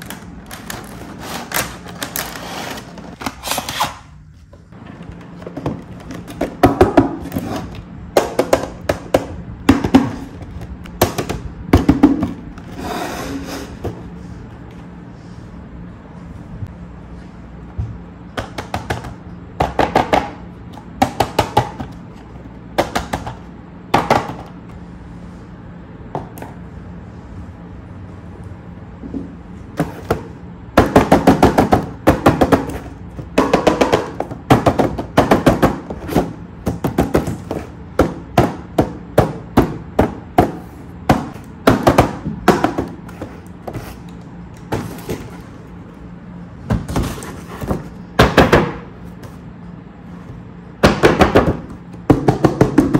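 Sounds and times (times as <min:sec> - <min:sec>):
cardboard boxes knocking on table: 0:05.5 - 0:07.4, 0:50.8 - 0:52.9.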